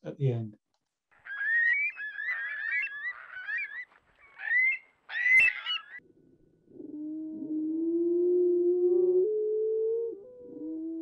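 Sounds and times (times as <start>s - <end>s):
curlews calling: 1.1s - 6.0s.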